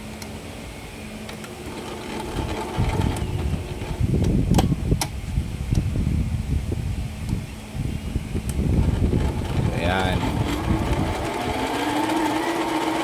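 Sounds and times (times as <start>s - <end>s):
sharp clicks: 1.2s - 1.6s
sewing machine running: 1.6s - 4.0s, 8.8s - 13.0s.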